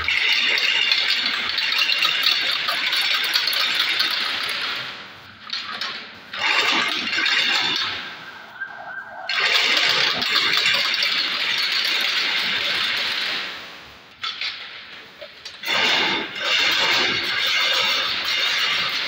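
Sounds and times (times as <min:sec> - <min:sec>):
wire weaving machine hissing: 0:00.0 - 0:19.0.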